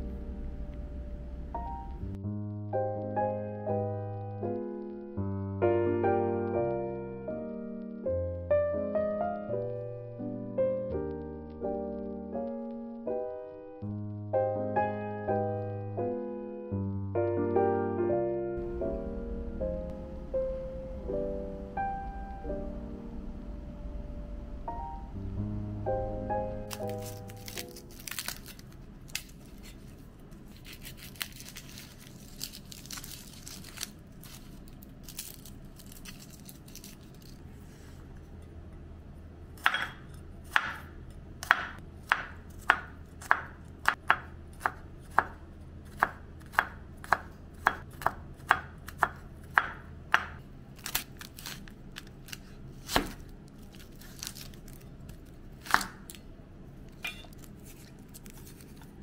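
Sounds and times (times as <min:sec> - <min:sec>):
knife chopping on cutting board: 0:39.6 - 0:50.4, 0:52.8 - 0:53.2.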